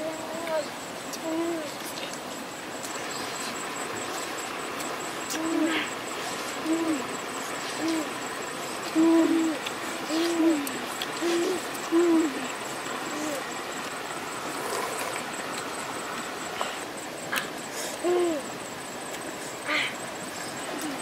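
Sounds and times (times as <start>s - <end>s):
steady hiss: 0.0s - 21.0s
bird hooting: 2.9s - 18.9s.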